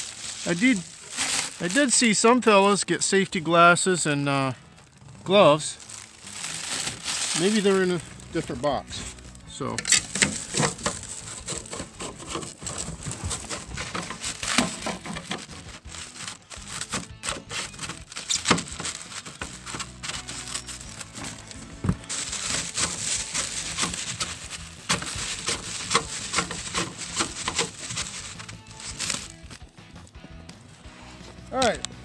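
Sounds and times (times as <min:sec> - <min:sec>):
plastic wrap crinkling: 0:00.0 - 0:02.8, 0:04.6 - 0:09.4, 0:10.0 - 0:29.7.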